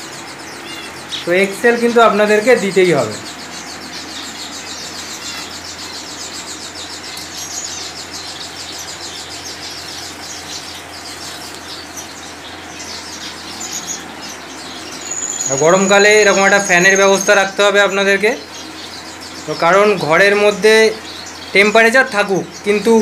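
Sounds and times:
fan air rushing: 0:00.0 - 0:23.0
finches chirping: 0:00.0 - 0:23.0.

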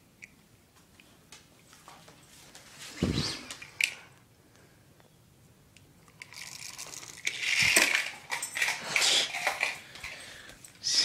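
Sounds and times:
toy car clattering on wooden floor: 0:06.2 - 0:10.2.

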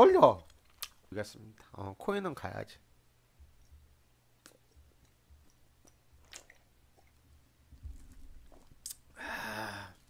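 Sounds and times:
man gulping: 0:04.4 - 0:07.3.

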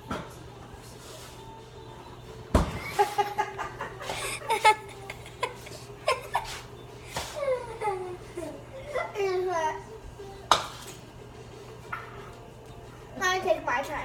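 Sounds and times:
person laughing: 0:02.8 - 0:06.6.

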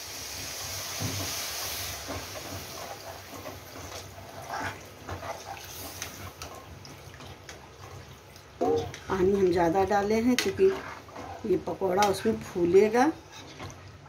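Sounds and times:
water pouring with hiss: 0:00.0 - 0:07.2.

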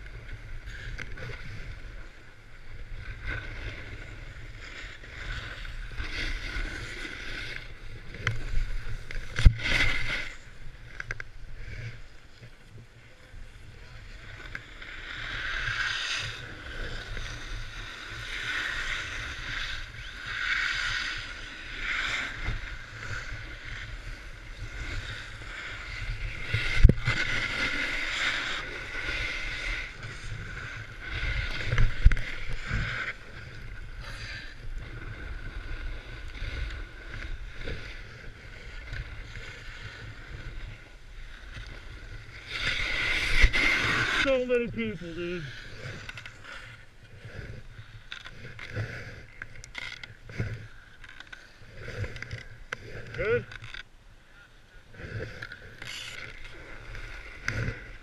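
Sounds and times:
edges scraping on packed snow: 0:41.8 - 0:47.8.

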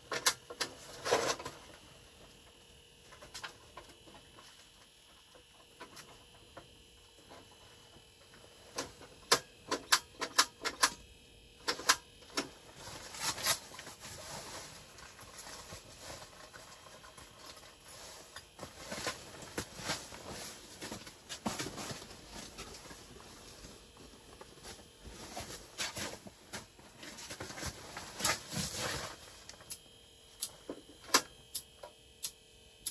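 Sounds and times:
rustling and shuffling: 0:12.4 - 0:29.6.

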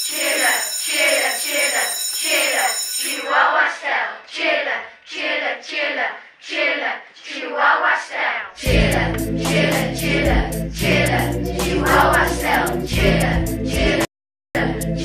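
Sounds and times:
children chanting rhythmically: 0:00.0 - 0:14.1.

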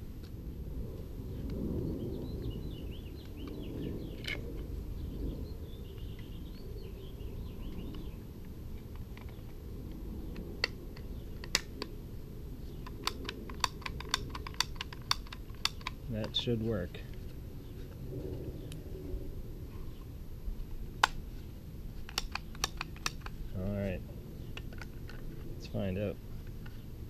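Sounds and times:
plastic and metal parts clicking: 0:12.8 - 0:16.4, 0:22.0 - 0:23.4.

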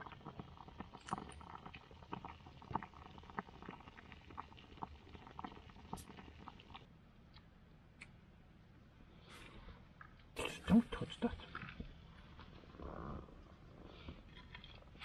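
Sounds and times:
pot of food boiling: 0:00.0 - 0:06.9, 0:10.4 - 0:15.0.

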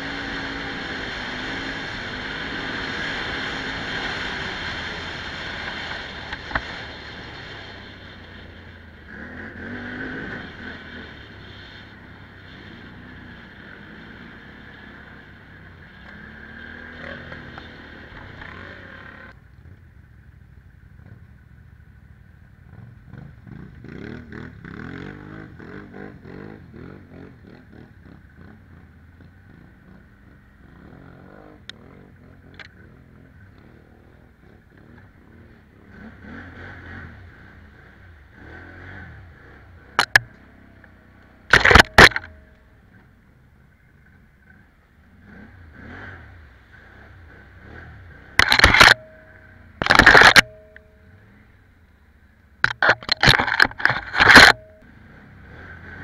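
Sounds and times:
quad bike engine revving: 0:00.0 - 0:19.4, 0:22.7 - 0:51.5, 0:52.6 - 0:56.0
branches hitting camera: 0:41.5 - 0:42.5, 0:48.4 - 0:50.9, 0:52.7 - 0:54.8.

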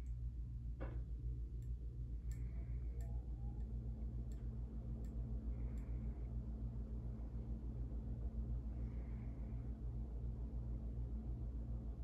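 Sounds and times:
faint fan ticks: 0:00.0 - 0:06.1
ceiling fan motor hum: 0:00.0 - 0:12.0.

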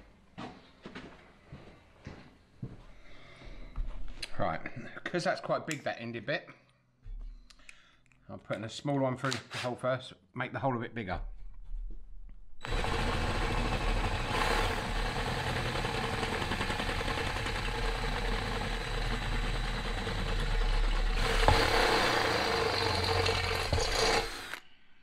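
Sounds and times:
cordless drill whine: 0:12.6 - 0:24.7.

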